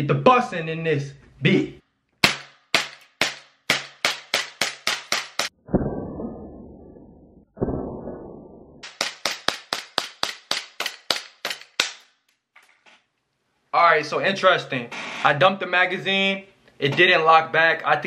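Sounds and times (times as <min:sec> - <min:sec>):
airsoft pistol shots: 0:02.2 - 0:05.5
dull decaying sounds: 0:05.5 - 0:08.8.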